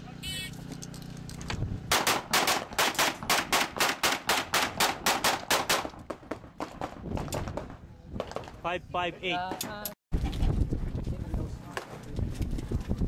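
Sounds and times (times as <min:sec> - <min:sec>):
rapid pistol shots: 0:01.9 - 0:06.0.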